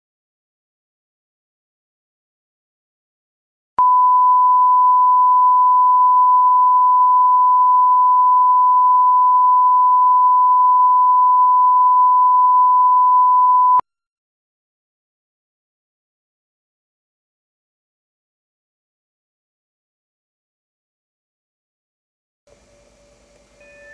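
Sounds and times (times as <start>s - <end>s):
steady sine tone: 3.8s - 13.8s.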